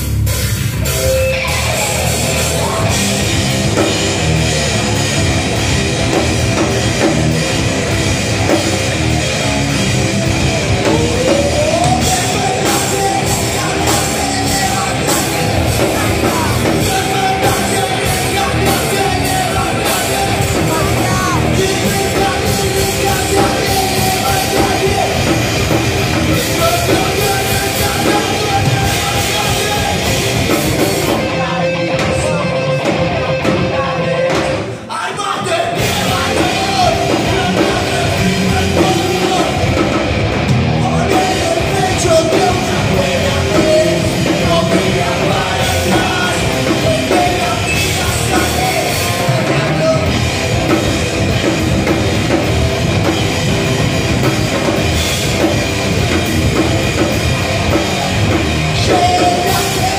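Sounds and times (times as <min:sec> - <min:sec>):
bass guitar: 0:00.0 - 0:59.9
drum kit: 0:00.0 - 0:59.9
electric guitars: 0:00.0 - 0:59.9
person singing: 0:10.4 - 0:40.0, 0:40.6 - 0:52.4, 0:54.2 - 0:59.9.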